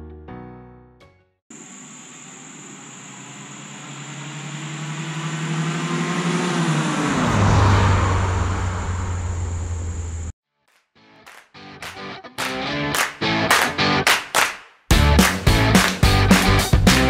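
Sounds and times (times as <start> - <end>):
car driving past: 2.9 - 10.3.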